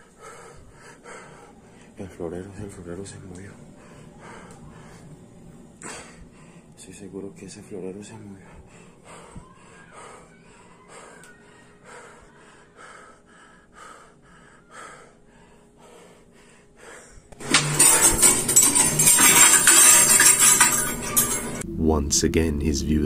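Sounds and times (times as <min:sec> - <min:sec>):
person breathing quickly: 0:00.0 - 0:02.0, 0:03.6 - 0:06.8, 0:08.3 - 0:17.4.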